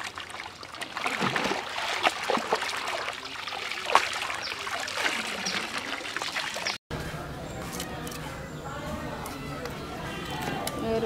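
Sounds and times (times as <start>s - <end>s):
water bubbling: 0.0s - 6.8s
water splashing and trickling: 0.0s - 6.8s.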